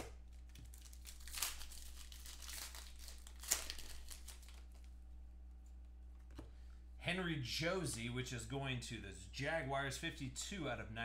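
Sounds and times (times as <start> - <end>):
plastic wrapping crinkling: 0.3 - 5.0.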